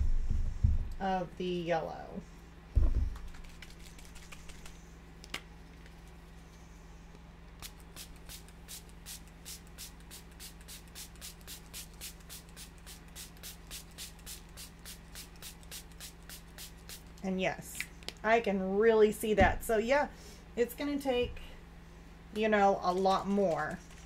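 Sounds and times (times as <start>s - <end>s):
spray bottle hissing mist: 7.6s - 17.2s.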